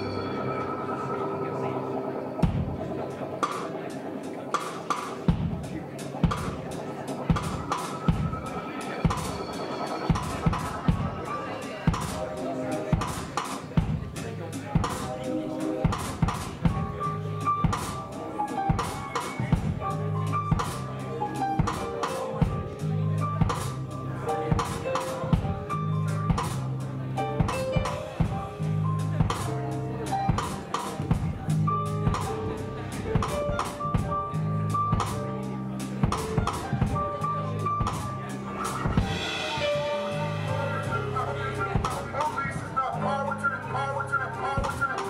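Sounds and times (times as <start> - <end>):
sustained keyboard notes: 0.0 - 45.0
drum hits: 2.4 - 3.9, 4.6 - 15.2, 15.8 - 17.0, 17.6 - 20.9, 27.4 - 29.5, 36.0 - 40.6
bass riff: 25.3 - 44.8.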